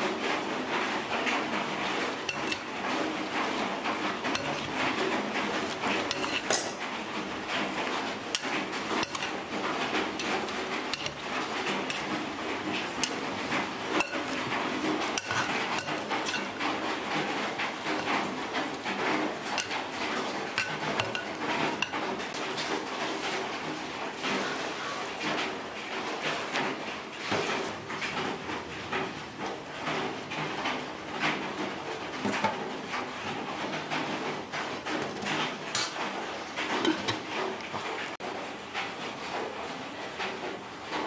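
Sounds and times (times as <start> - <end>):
metal spoon scraping a pot: 1.4 - 23.3, 33.7 - 37.8.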